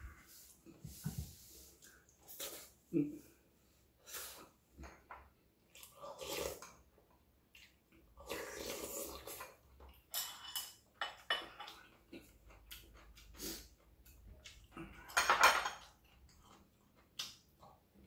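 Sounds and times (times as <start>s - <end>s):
person chewing and slurping: 5.7s - 6.8s, 7.5s - 10.0s, 11.4s - 15.1s.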